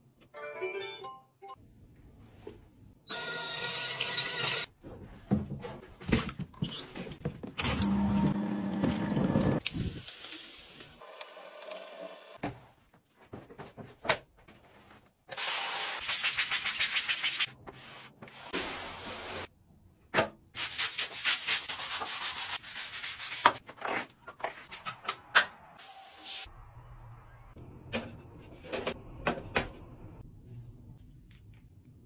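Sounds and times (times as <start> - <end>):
brush scrubbing wet tiled floor: 16.0 - 19.5.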